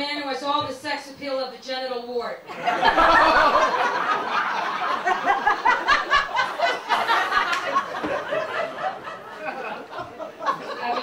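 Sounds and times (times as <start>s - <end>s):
audience laughing: 2.5s - 11.0s.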